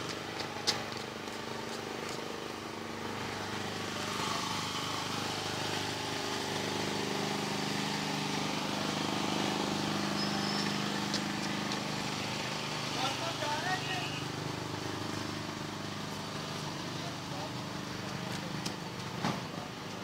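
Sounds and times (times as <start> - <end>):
motor running with low drone: 0.0 - 13.3.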